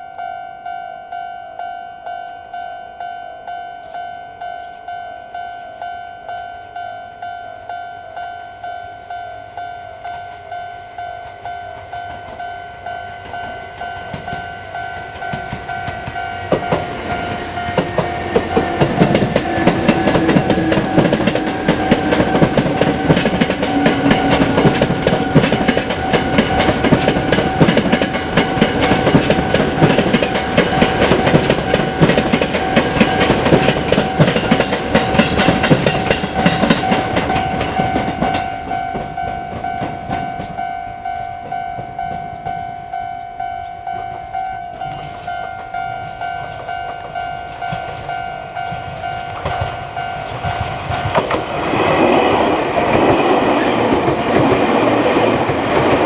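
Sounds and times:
level-crossing alarm dinging: 0:00.0 - 0:56.0
train motor whine: 0:08.5 - 0:42.6
train wheels clattering: 0:10.0 - 0:42.8, 0:43.9 - 0:56.0.

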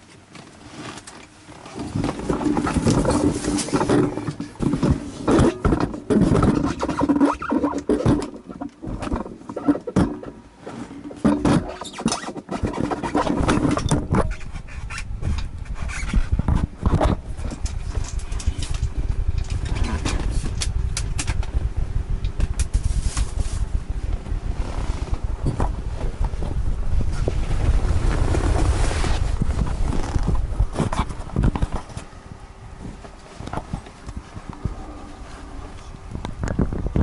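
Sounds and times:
knocks and rattles: 0:01.8 - 0:10.4, 0:11.0 - 0:24.3
car engine and road rumble: 0:13.2 - 0:37.0.

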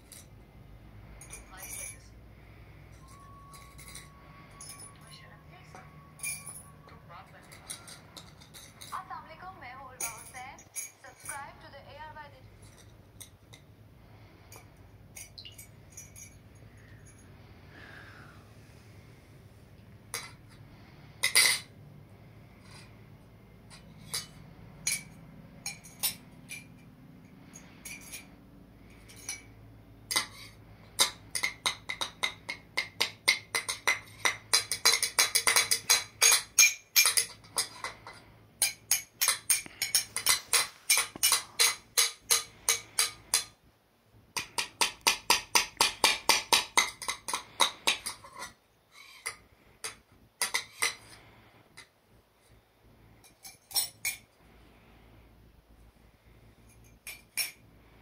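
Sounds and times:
metal spoon clinking in bowl: 0:01.2 - 0:02.2, 0:03.0 - 0:05.2, 0:05.8 - 0:09.0, 0:14.5 - 0:17.3, 0:23.7 - 0:26.9, 0:27.5 - 0:28.3, 0:29.0 - 0:43.6, 0:53.2 - 0:54.3.

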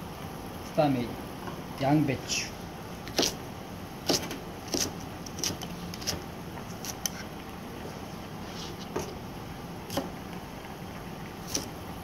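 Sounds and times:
knife cutting cabbage on board: 0:03.0 - 0:03.4, 0:04.0 - 0:07.3, 0:09.9 - 0:10.1, 0:11.4 - 0:11.7.

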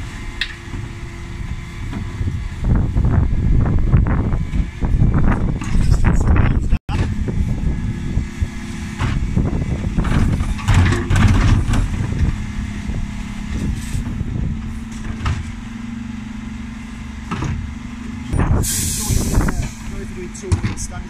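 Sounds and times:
engine and hydraulic hum: 0:00.0 - 0:21.0
bins banging and clattering: 0:10.0 - 0:12.4, 0:19.6 - 0:21.0.

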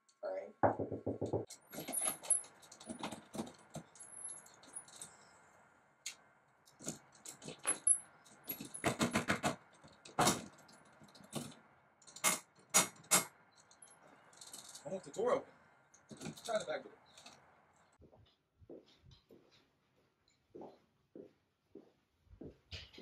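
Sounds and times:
keys jangling: 0:01.5 - 0:05.2, 0:06.7 - 0:12.4, 0:13.6 - 0:14.8.

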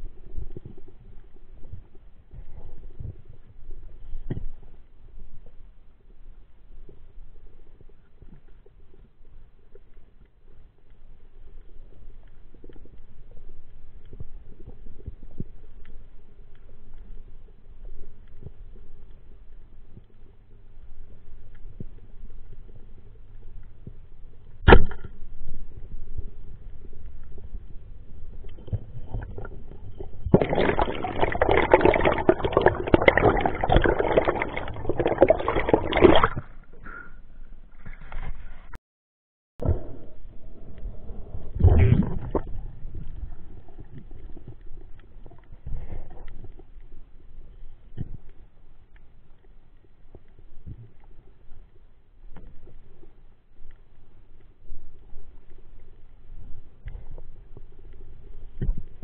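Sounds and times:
soft water rumble: 0:00.0 - 0:38.8, 0:39.6 - 0:59.0
water splashing and bubbling: 0:25.7 - 0:36.9, 0:39.6 - 0:47.2.

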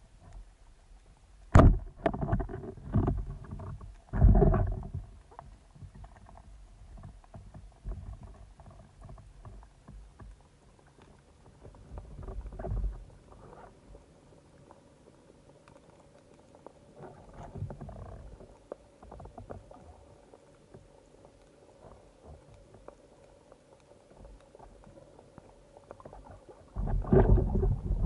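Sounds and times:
faint clicks underwater: 0:00.0 - 0:28.0
rumbling water noise: 0:00.0 - 0:28.0
underwater knocks: 0:01.6 - 0:05.2, 0:26.2 - 0:28.0.

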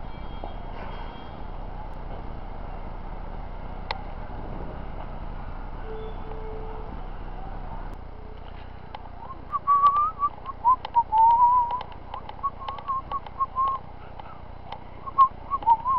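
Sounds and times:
person whistling a tune: 0:09.2 - 0:13.8, 0:15.0 - 0:15.9
short clicks: 0:09.7 - 0:13.8.

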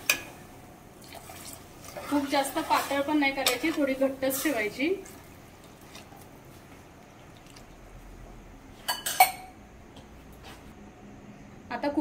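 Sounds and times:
metal spoon clinking on pot: 0:08.8 - 0:09.5.

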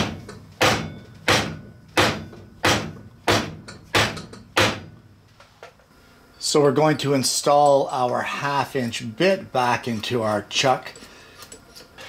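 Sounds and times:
hammer knocking on wood block: 0:00.0 - 0:04.9.

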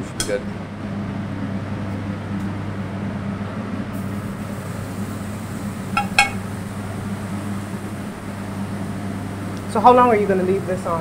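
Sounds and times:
kitchen ventilation hum: 0:00.0 - 0:11.0
metal tongs clinking on grill grate: 0:06.0 - 0:06.4.

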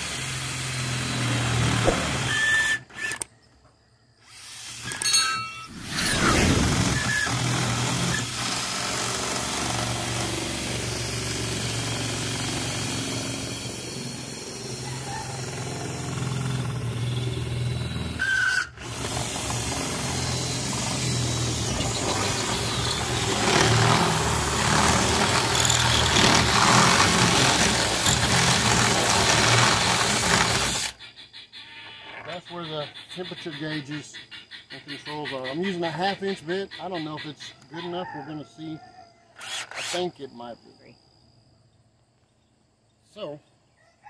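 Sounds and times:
cordless drill boring through metal: 0:00.0 - 0:03.3, 0:04.3 - 0:31.0, 0:39.4 - 0:40.1.

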